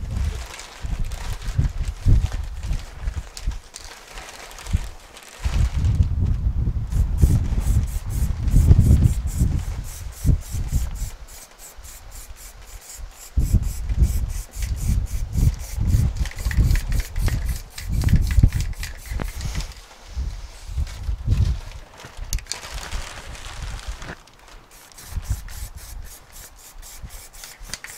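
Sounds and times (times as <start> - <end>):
low rubbing rumble: 5.6 - 11.2
aerosol can spraying: 6.9 - 19.6, 24.7 - 27.9.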